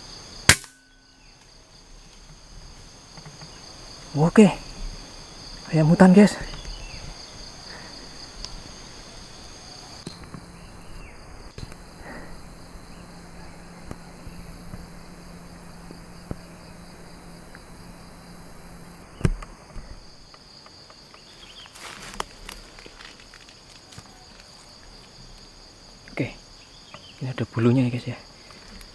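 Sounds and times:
low steady hum: 0:00.0 - 0:26.9
insect chorus: 0:00.0 - 0:28.9
sharp crack: 0:00.4 - 0:00.9
footsteps in dry leaves: 0:21.3 - 0:24.8.

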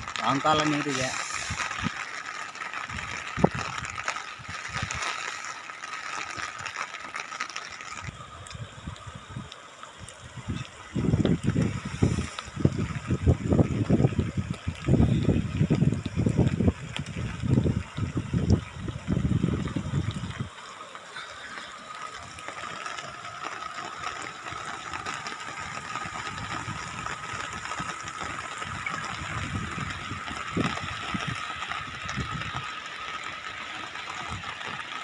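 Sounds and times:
rushing floodwater: 0:00.0 - 0:35.0
wind gusts on microphone: 0:02.9 - 0:05.0, 0:10.2 - 0:20.5, 0:26.0 - 0:32.7.

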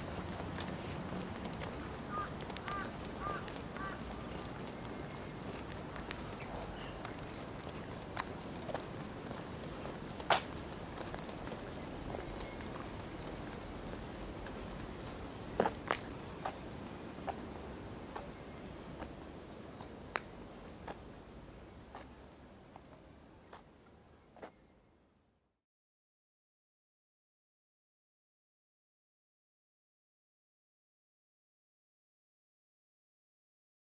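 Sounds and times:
footsteps on pavement: 0:00.0 - 0:21.1, 0:21.7 - 0:23.8, 0:24.4 - 0:24.6
insects buzzing: 0:02.1 - 0:24.5.

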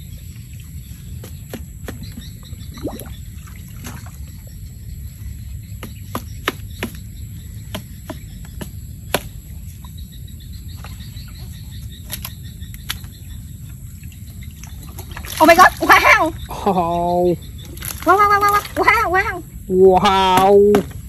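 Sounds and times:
bamboo clicks and knocks: 0:12.0 - 0:13.2.

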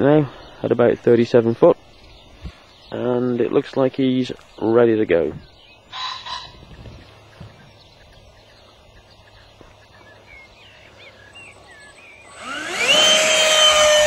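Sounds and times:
model plane electric motor whine: 0:11.4 - 0:14.0.

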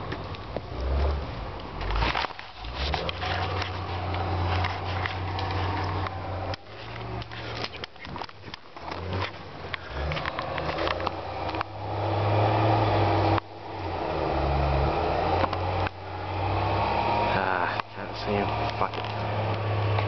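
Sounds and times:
low engine hum: 0:00.0 - 0:20.0
twigs snapping underfoot: 0:01.6 - 0:11.8
footsteps crunching on pine needles: 0:01.8 - 0:10.9.

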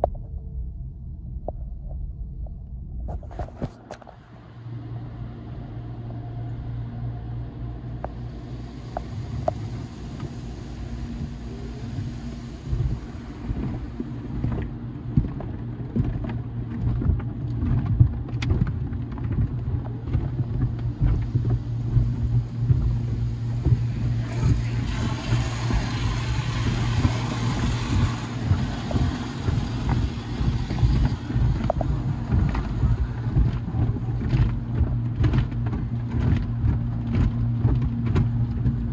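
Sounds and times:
low hum: 0:00.0 - 0:38.9
water spraying onto car: 0:08.1 - 0:16.2, 0:19.7 - 0:36.4.

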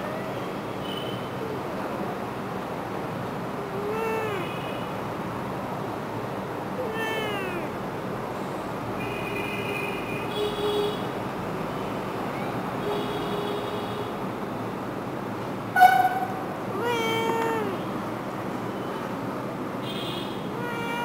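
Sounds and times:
kitten meowing: 0:03.8 - 0:04.5, 0:06.8 - 0:07.7, 0:15.9 - 0:17.8, 0:20.6 - 0:21.0.

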